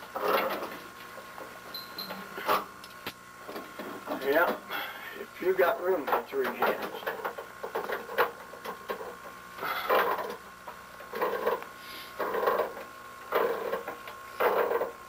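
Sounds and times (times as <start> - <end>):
tool scraping metal pipe: 11.1 - 15.0.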